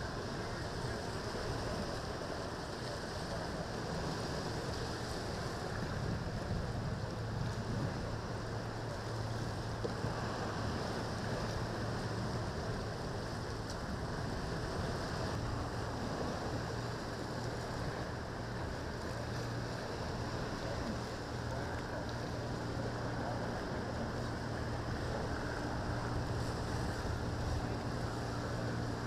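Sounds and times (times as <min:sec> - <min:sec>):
boat engine drone: 0:00.0 - 0:29.0
waves splashing: 0:00.0 - 0:29.0
wind on microphone: 0:03.3 - 0:18.7.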